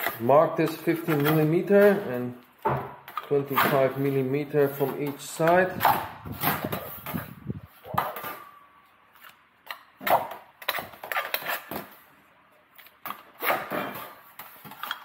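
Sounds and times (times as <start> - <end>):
tools tapping and scraping on metal: 0.0 - 3.8.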